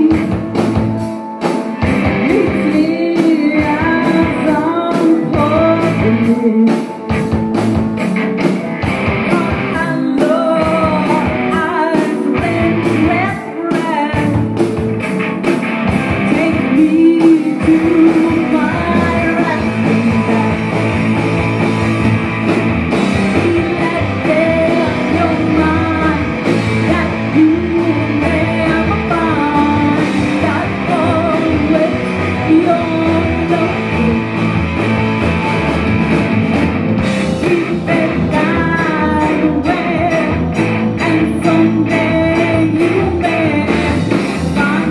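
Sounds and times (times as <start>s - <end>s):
woman singing: 0.0s - 0.9s, 2.0s - 7.1s, 9.2s - 14.8s, 16.2s - 21.0s, 23.1s - 34.5s, 37.1s - 44.9s
bass guitar: 0.0s - 44.9s
drums: 0.0s - 44.9s
electric guitar: 0.0s - 44.9s
keyboard: 0.0s - 44.9s.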